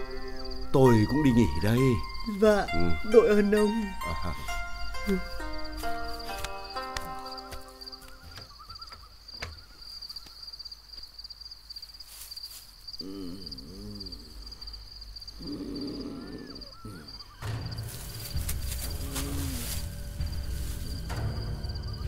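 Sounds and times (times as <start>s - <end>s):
music: 0.0s - 8.5s, 17.4s - 22.0s
crickets chirping: 0.0s - 22.0s
pitched animal calls: 13.0s - 20.3s.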